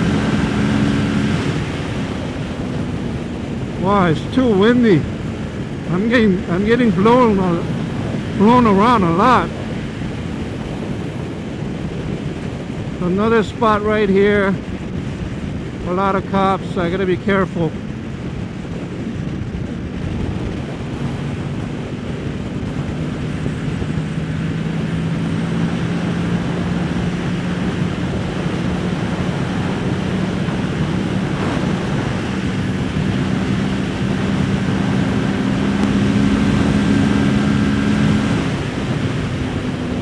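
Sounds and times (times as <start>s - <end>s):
motorcycle engine accelerating: 0.0s - 13.0s, 13.7s - 40.0s
heavy wind rush: 0.0s - 40.0s.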